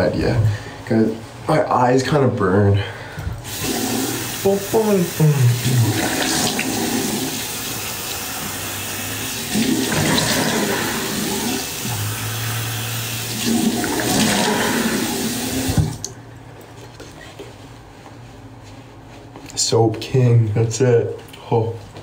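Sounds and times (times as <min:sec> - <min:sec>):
tap running into sink: 0:15.5 - 0:16.1.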